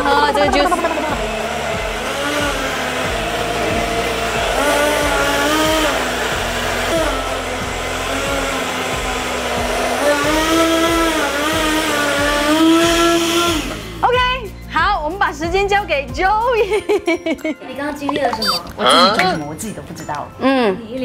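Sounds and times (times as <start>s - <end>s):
blender whirring: 0.0s - 14.1s
light background music: 0.0s - 21.0s.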